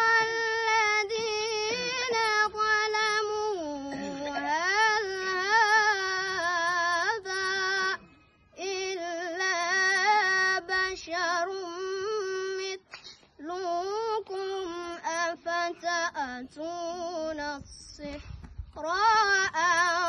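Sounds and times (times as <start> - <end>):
boy reciting melodically: 0.0 - 20.0.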